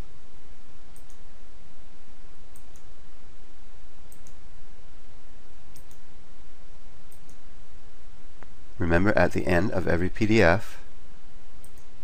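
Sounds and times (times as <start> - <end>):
microphone hiss: 0.0 - 12.0.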